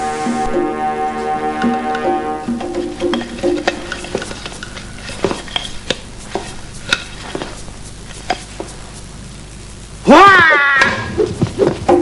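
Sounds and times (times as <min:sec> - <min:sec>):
film soundtrack hiss: 0:00.0 - 0:12.0.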